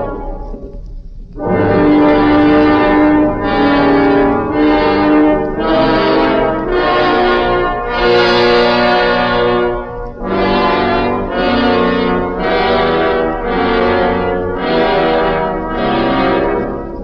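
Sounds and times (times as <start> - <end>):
brass held chords: 0.0 - 0.7, 1.3 - 17.0.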